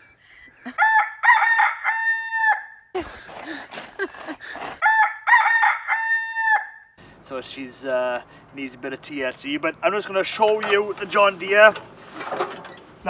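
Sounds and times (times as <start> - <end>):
rooster crowing: 0.7 - 2.8, 4.8 - 6.9.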